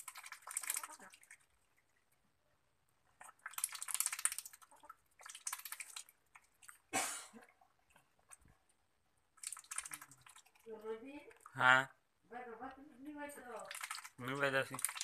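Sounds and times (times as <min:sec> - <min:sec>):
ducks slurping watery feed: 0:00.0 - 0:02.4, 0:03.0 - 0:11.6, 0:13.6 - 0:15.0.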